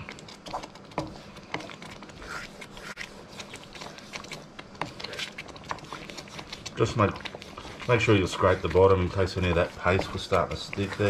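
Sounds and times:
wooden spoon scraping a pan: 0.0s - 11.0s.

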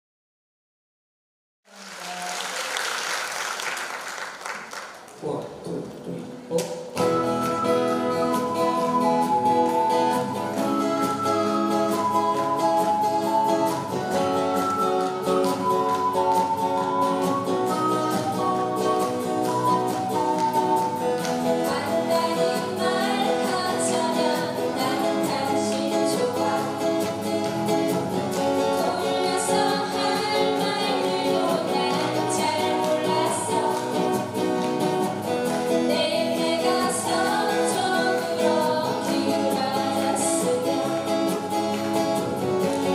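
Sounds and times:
strummed acoustic guitars: 6.3s - 42.9s
voices singing: 6.5s - 42.4s
ocarina melody: 7.0s - 34.0s.

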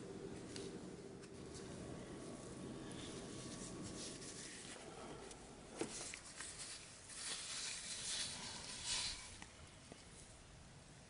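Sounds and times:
hands rubbing and scraping dough: 2.8s - 10.2s.

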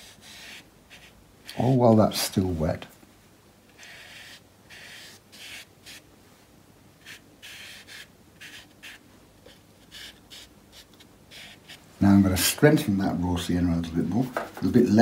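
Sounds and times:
soft brush strokes on paper: 0.0s - 2.4s, 3.8s - 12.6s.

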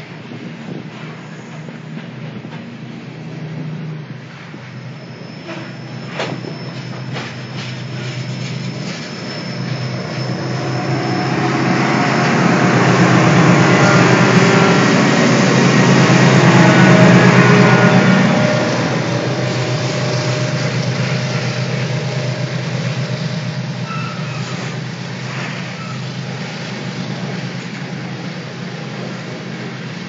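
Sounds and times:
diesel locomotive engines: 0.0s - 30.0s
thin high wheel squeal: 4.4s - 26.2s
train wheels clacking: 5.4s - 30.0s.

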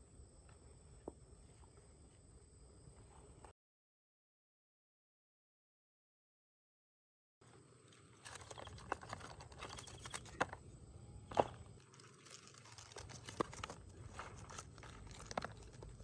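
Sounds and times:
crab shells clicking: 8.3s - 10.6s.

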